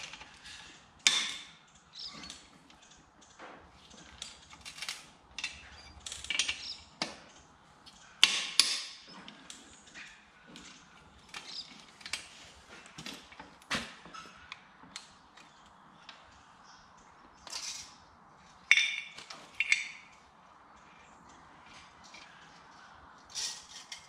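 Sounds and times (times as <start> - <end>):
metal parts clinking: 3.9 - 6.9, 18.7 - 20.3.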